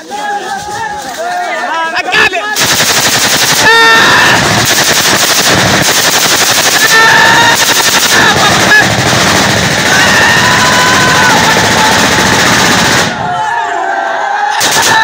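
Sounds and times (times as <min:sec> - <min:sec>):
automatic gunfire: 0:02.6 - 0:13.3, 0:14.6 - 0:15.0.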